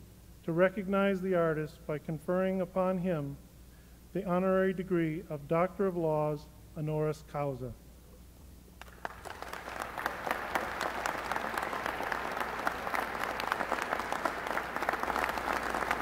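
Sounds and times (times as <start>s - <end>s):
audience applauding: 8.8s - 16.0s.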